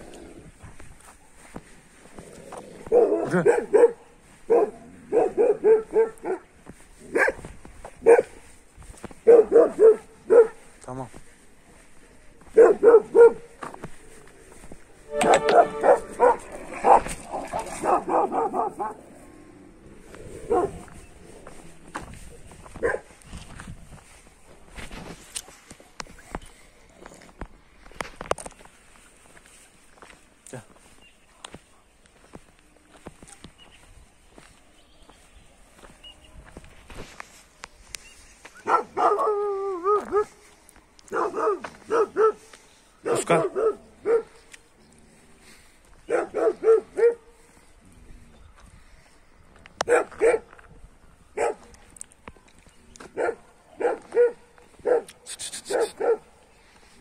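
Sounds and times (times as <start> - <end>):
dogs barking and yelping: 2.8 - 8.5, 9.1 - 10.7, 12.5 - 13.5, 15.1 - 19.3, 20.0 - 21.6, 38.6 - 44.5, 46.0 - 47.4, 49.8 - 50.6, 51.3 - 51.7, 53.0 - 56.4
dog short barks: 15.1 - 19.0, 53.2 - 56.2.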